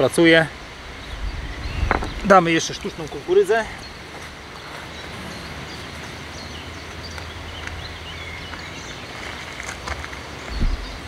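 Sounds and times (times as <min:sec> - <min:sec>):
low rumble and hiss: 0:00.0 - 0:08.4
small birds chirping: 0:00.0 - 0:11.0.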